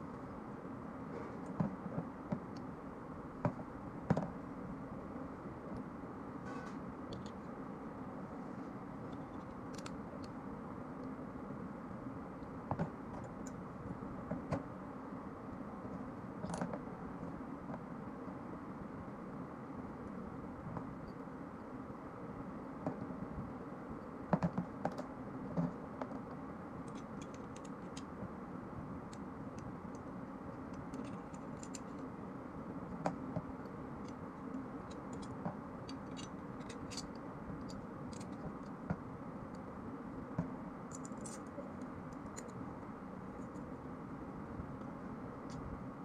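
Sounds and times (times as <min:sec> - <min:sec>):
steady background noise: 0:00.0 - 0:46.0
metallic clicks and scrapes: 0:30.0 - 0:32.1, 0:34.0 - 0:38.8.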